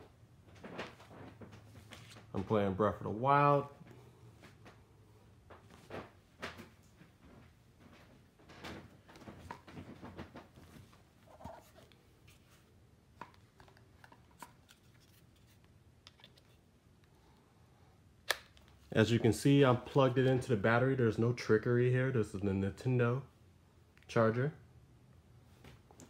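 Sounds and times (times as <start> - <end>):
soft rustling: 0.1 - 2.8, 3.7 - 12.8.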